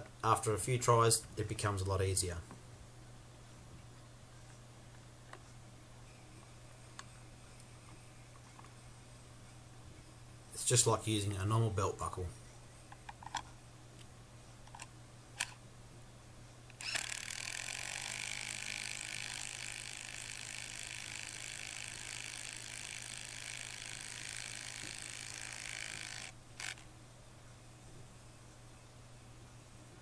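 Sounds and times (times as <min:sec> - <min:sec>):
cordless drill drilling into wood: 0:16.8 - 0:26.8.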